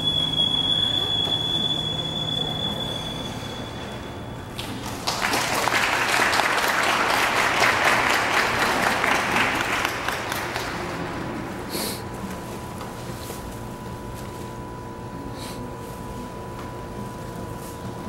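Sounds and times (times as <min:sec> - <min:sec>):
audience applauding: 0:04.6 - 0:11.4.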